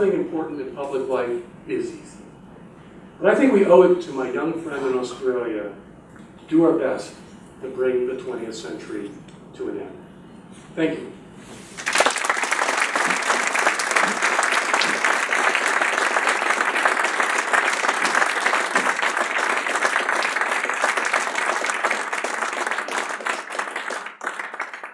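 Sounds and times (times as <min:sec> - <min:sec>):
audience applauding: 0:11.8 - 0:24.9.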